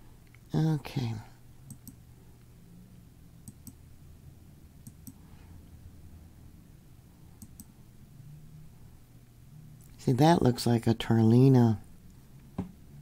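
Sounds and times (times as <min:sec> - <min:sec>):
low steady hum: 0:00.0 - 0:13.0
computer mouse double-clicking: 0:01.7 - 0:02.0, 0:07.4 - 0:07.7.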